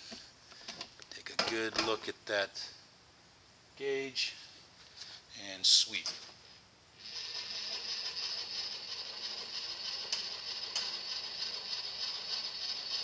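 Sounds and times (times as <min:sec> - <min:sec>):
milling machine running: 0:07.0 - 0:13.0.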